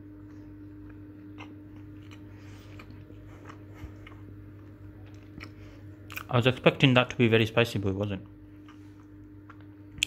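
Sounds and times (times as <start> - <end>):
low steady hum: 0.0 - 10.0
quiet chewing: 0.2 - 6.3, 8.6 - 10.0.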